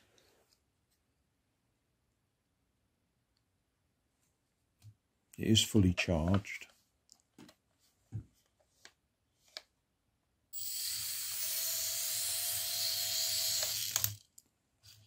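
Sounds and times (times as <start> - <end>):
tiny electric motor whining: 10.6 - 14.2.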